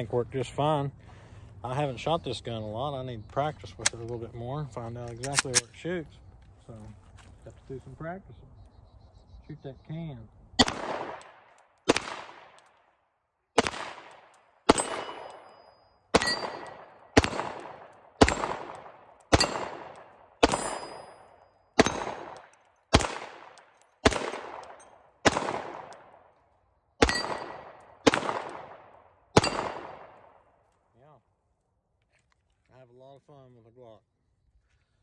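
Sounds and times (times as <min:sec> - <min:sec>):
pistol shots echoing: 0:10.6 - 0:12.9, 0:13.5 - 0:26.4, 0:27.0 - 0:30.5
metallic ring of steel targets: 0:13.7 - 0:16.9, 0:19.4 - 0:19.7, 0:20.4 - 0:22.1, 0:27.0 - 0:27.7, 0:29.4 - 0:29.8.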